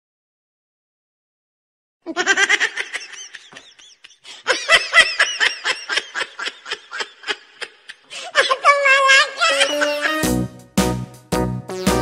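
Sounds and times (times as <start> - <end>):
person laughing: 2.1 - 10.3.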